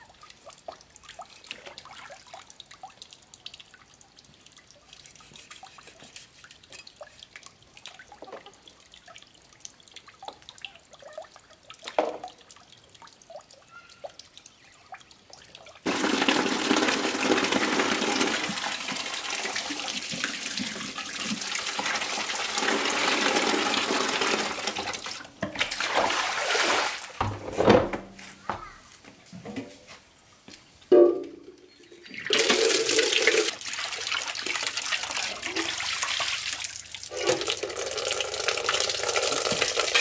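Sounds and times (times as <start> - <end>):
tap water running into basin: 15.0 - 27.4, 31.5 - 40.0.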